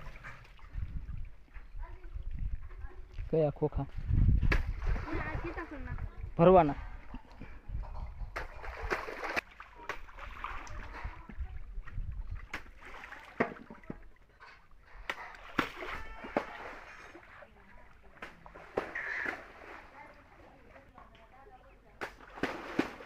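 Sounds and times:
water splashing in a tank: 0:08.4 - 0:14.2, 0:15.0 - 0:20.3, 0:22.0 - 0:23.0.

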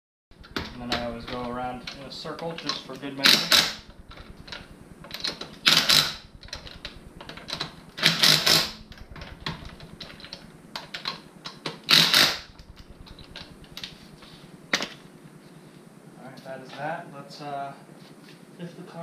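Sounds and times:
impact wrench hammering lug nuts: 0:03.3 - 0:14.0.

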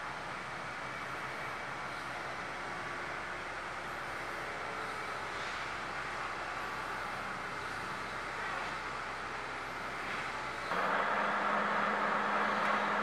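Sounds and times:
diesel lorry engine running: 0:02.6 - 0:13.0
low engine drone: 0:10.6 - 0:13.0.

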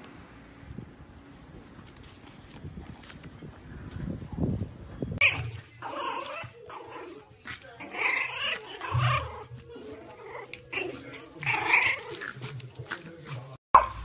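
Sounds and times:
puppies growling and yelping: 0:05.2 - 0:12.5.

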